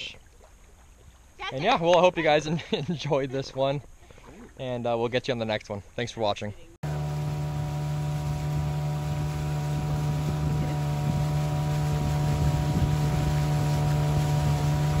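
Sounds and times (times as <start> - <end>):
outboard motor running: 6.8 - 15.0.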